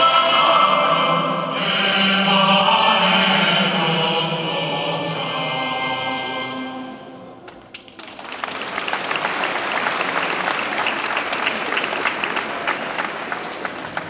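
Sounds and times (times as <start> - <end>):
crowd applauding: 7.4 - 14.0.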